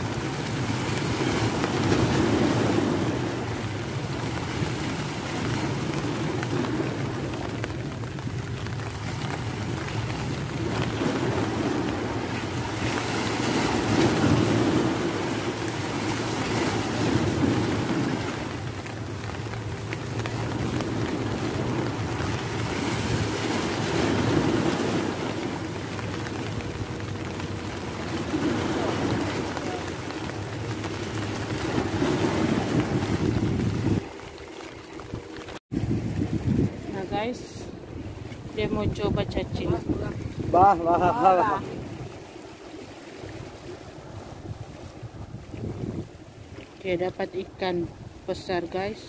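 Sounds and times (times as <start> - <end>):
wind on microphone: 0.0 - 48.9
waves breaking against rocks: 0.0 - 49.0.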